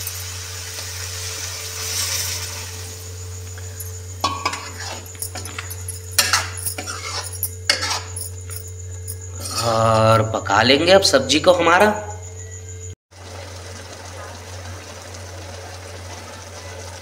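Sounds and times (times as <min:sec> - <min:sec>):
water hissing in hot pan: 0:00.0 - 0:08.2, 0:13.1 - 0:17.0
metal ladle scraping pan: 0:03.8 - 0:08.6, 0:09.3 - 0:10.0.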